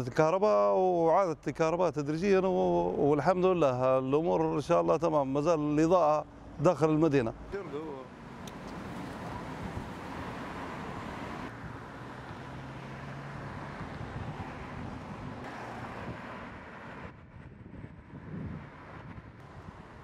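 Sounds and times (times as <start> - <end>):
car traffic rumble: 1.2 - 20.0.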